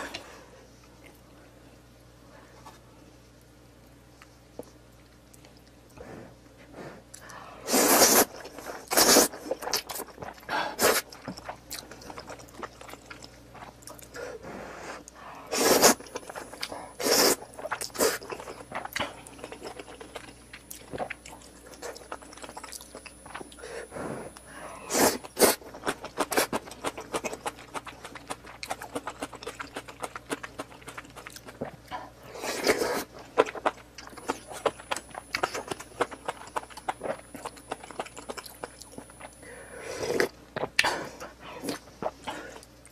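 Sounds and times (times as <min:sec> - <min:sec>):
chewing with small clicks: 0:03.4 - 0:06.0, 0:09.6 - 0:14.2, 0:17.5 - 0:23.6, 0:25.7 - 0:32.1, 0:33.0 - 0:39.4.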